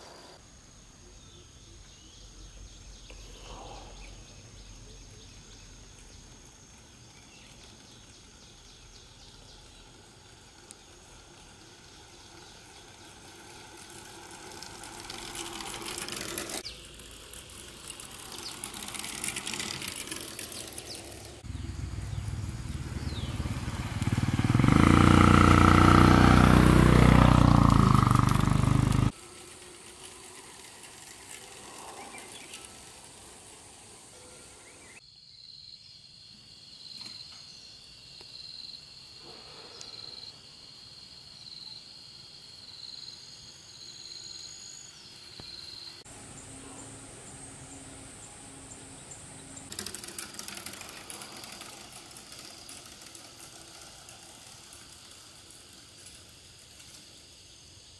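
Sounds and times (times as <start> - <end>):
motorbike engine passing: 6.7 - 35.0, 46.0 - 57.6
faint ambience: 44.9 - 49.7.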